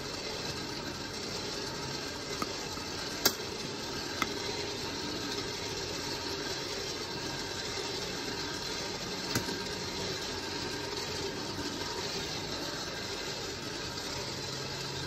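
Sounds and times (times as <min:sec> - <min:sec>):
coffee roaster running: 0:00.0 - 0:15.0.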